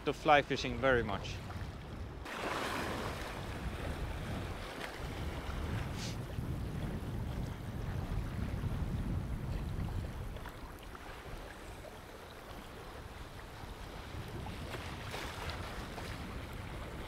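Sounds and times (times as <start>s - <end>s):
wind buffeting microphone: 0.8s - 17.0s
waves splashing against rocks: 2.2s - 6.2s.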